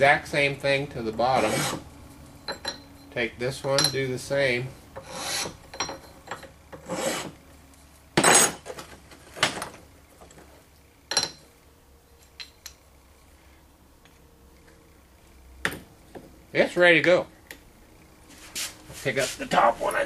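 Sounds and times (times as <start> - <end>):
hand file rasping: 1.4 - 1.8, 5.0 - 5.6, 6.8 - 7.4.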